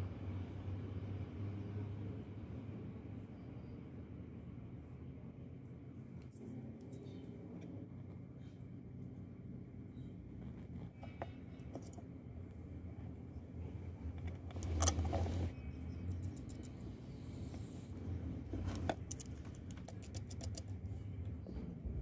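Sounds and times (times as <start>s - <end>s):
small metal parts clicking: 14.2s - 15.2s, 16.0s - 16.8s, 18.7s - 20.8s.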